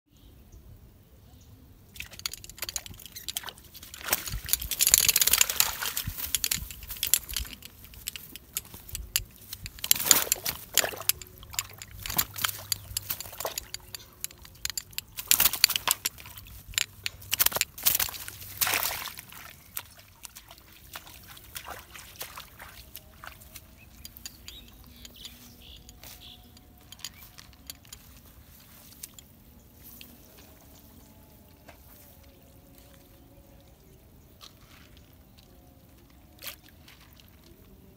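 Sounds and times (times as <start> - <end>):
water splashing and sloshing: 1.9 - 37.9
faint handling sounds: 2.0 - 21.6, 22.4 - 33.2.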